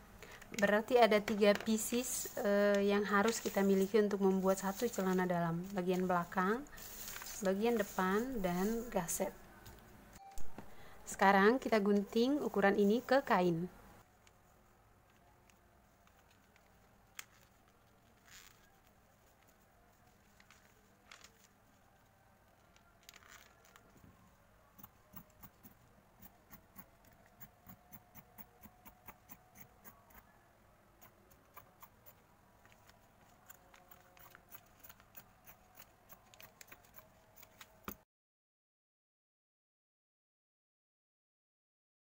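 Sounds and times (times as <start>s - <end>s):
shears snipping fabric: 1.7s - 9.2s, 24.8s - 30.3s, 31.0s - 38.0s.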